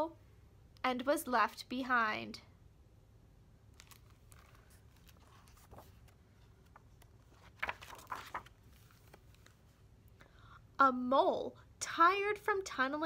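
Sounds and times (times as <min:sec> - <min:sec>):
page turning swish: 0:03.8 - 0:09.8.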